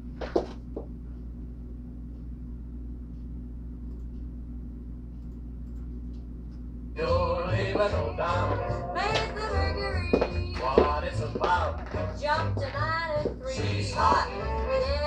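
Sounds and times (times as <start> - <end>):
low room hum: 0.0 - 15.0
recorded song with singing: 7.0 - 15.0.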